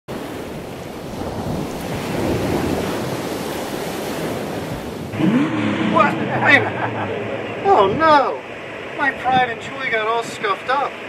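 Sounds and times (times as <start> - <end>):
steady rushing noise: 5.0 - 11.0.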